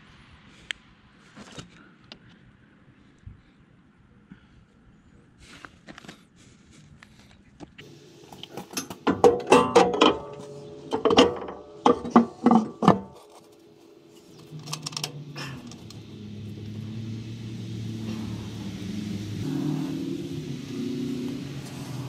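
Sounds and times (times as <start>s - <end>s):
low engine hum: 7.8s - 22.0s
metal plate clanking: 8.3s - 16.0s.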